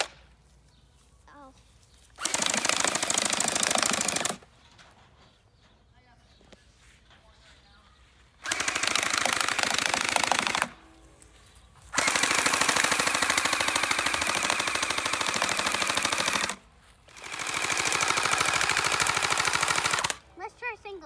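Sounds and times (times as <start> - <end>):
gel blaster firing bursts: 2.2 - 4.4, 8.4 - 10.8, 12.0 - 20.2.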